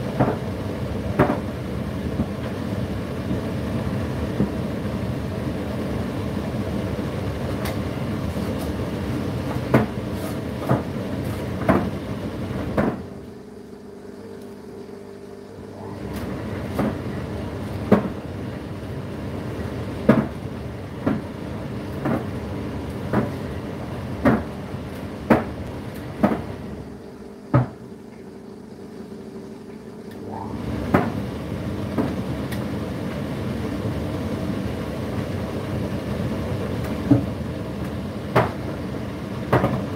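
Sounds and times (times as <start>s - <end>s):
tumble dryer motor humming: 0.0s - 39.9s
load knocking in dryer drum: 0.1s - 0.5s, 1.1s - 2.6s, 9.4s - 10.0s, 10.6s - 11.0s, 11.6s - 13.1s, 17.8s - 18.2s, 20.0s - 22.4s, 23.0s - 23.5s, 24.2s - 24.6s, 25.2s - 26.6s, 30.8s - 32.6s, 36.8s - 37.4s, 39.4s - 39.9s.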